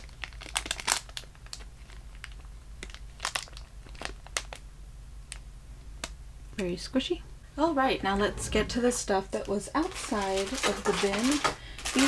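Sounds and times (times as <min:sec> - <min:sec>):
plastic bag crinkling: 0:00.0 - 0:04.6, 0:09.4 - 0:12.0.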